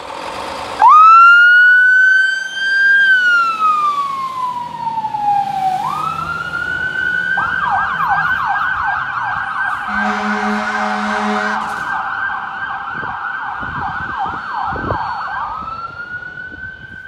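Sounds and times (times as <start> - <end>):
fire engine siren: 0.0 - 17.0
horn blast: 9.7 - 12.0.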